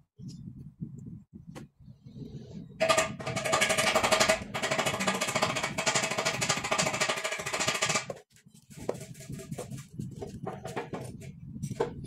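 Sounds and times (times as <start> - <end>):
rattling mechanical hammering: 2.8 - 8.2.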